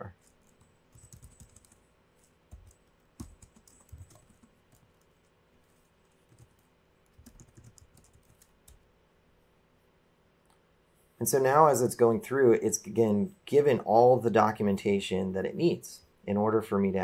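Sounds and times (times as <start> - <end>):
computer keyboard typing: 0.2 - 5.3, 6.1 - 8.8.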